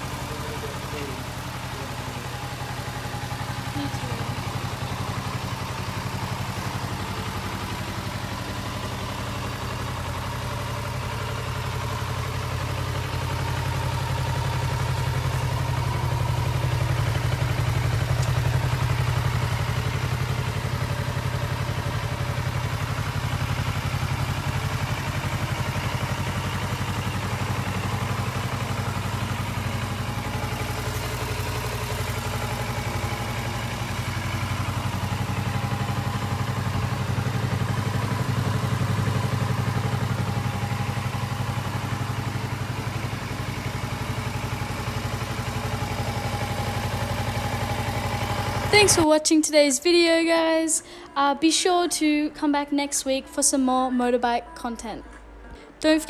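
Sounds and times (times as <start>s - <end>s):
motorcycle engine idling: 0.0s - 54.1s.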